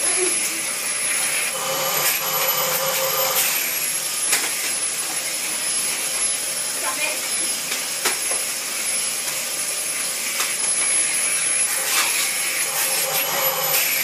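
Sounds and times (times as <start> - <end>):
vacuum cleaner running: 0.0 - 14.0.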